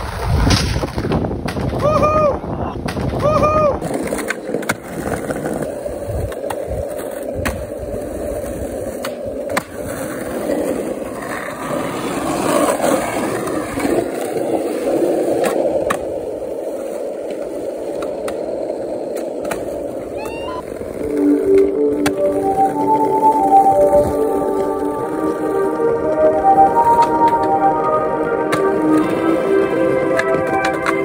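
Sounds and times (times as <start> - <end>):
skateboard popping and landing clacks: 0.0 - 2.2, 2.8 - 20.4
skateboard wheels rolling on pavement: 0.0 - 31.0.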